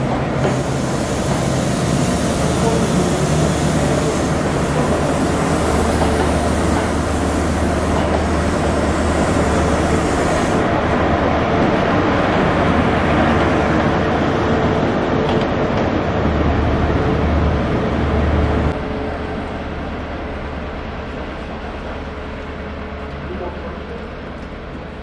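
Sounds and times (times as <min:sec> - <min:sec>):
diesel train engine drone: 0:00.0 - 0:25.0
train wheel and rail noise: 0:00.0 - 0:25.0
high hiss: 0:00.4 - 0:10.6.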